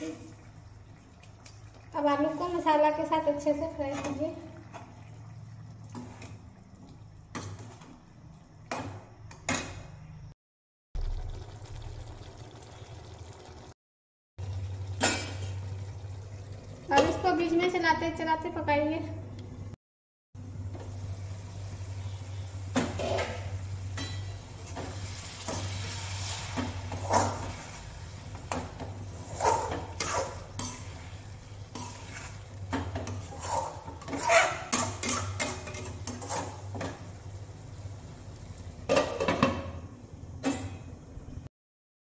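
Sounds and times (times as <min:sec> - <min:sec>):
metal spatula scraping a pot: 0:29.1 - 0:37.0.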